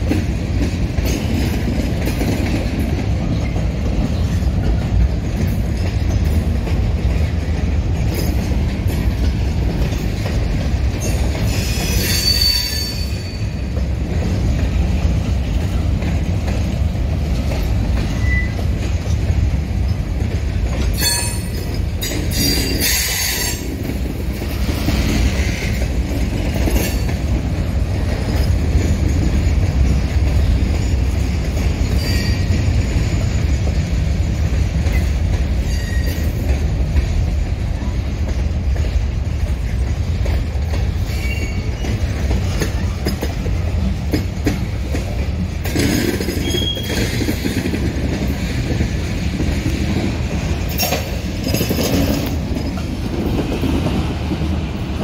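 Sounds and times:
freight train rumbling: 0.0s - 55.0s
high metallic squeals: 11.0s - 13.6s.

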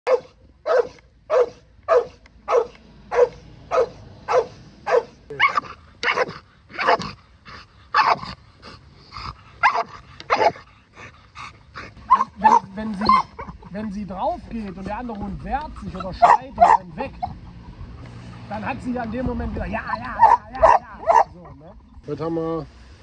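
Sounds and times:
dog barking: 0.1s - 7.2s, 7.9s - 8.3s, 9.6s - 10.6s, 12.1s - 13.5s, 15.9s - 17.4s, 19.9s - 21.4s.

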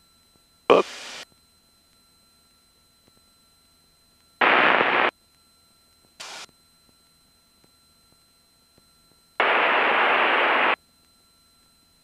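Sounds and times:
faint electronic hum: 0.0s - 12.0s
radio static burst: 0.7s - 1.2s, 4.4s - 5.1s, 6.2s - 6.5s, 9.4s - 10.8s.

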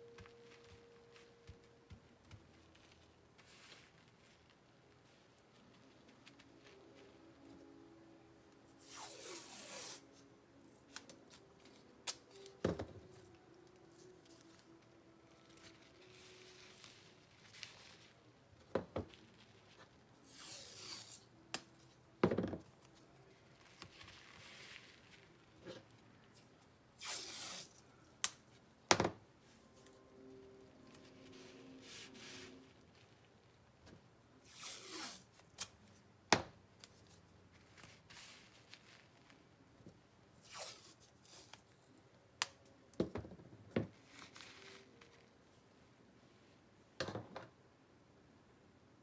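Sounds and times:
tape pulled off roll rasping: 8.7s - 18.2s, 20.2s - 21.5s, 27.0s - 27.8s, 34.4s - 35.9s, 40.4s - 41.8s.

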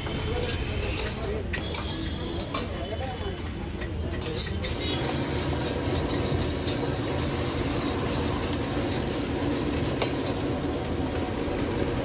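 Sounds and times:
gas burner roaring: 4.3s - 12.0s.

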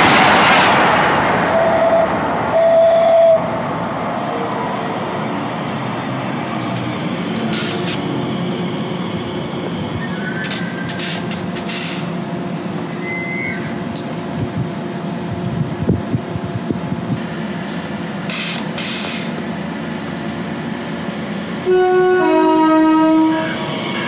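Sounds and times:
train running: 0.0s - 24.0s
two-tone train horn: 1.5s - 3.6s, 21.6s - 24.0s.

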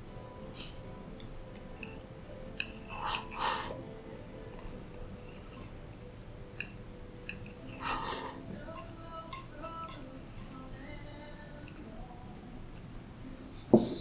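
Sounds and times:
quiet background music: 0.0s - 14.0s
chewing: 6.6s - 13.7s.

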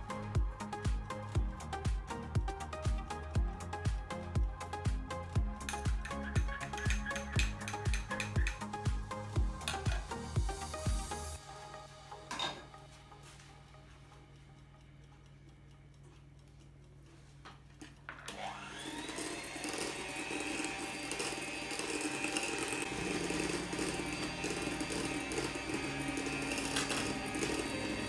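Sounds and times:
beaters churning batter in bowl: 18.3s - 28.0s
electric hand mixer whining: 18.3s - 28.0s.

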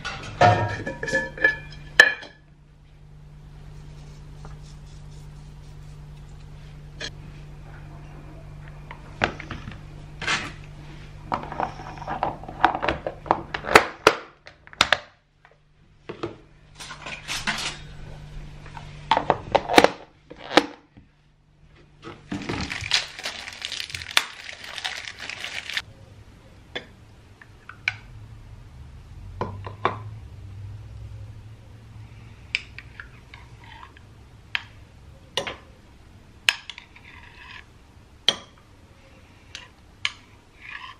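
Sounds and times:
rustling: 22.3s - 25.8s.

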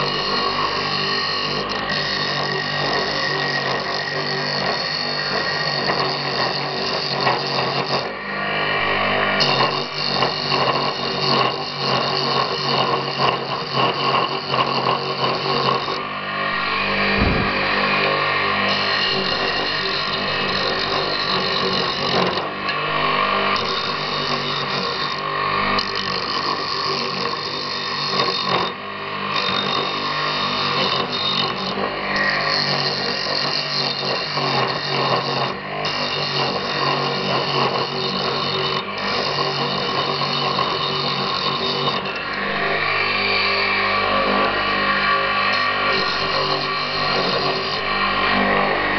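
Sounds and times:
lathe motor hum: 0.0s - 48.9s
axe blade cutting wood hiss: 17.0s - 17.7s.

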